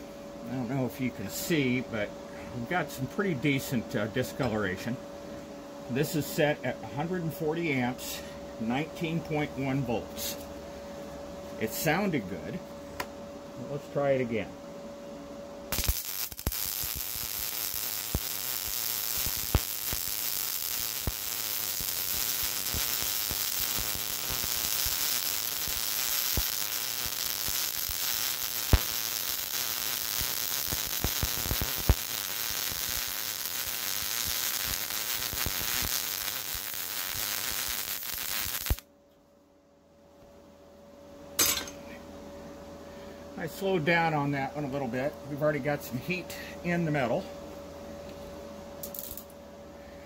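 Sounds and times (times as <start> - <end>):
sharp pops of spatter: 15.7 - 38.8
welding arc crackling sizzle: 15.7 - 38.9, 48.8 - 49.4.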